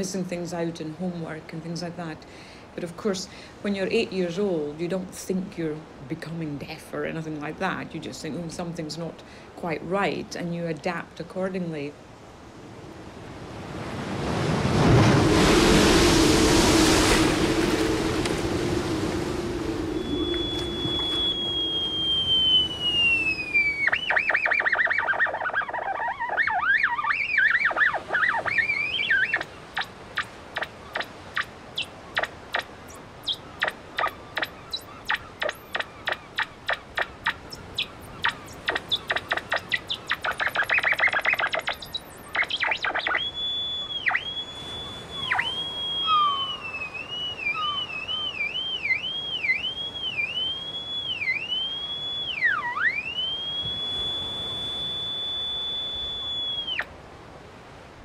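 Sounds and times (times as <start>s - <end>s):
theremin sliding whistling tones: 15.4s - 56.9s
high tone dipping in pitch: 17.0s - 29.9s, 32.2s - 56.9s.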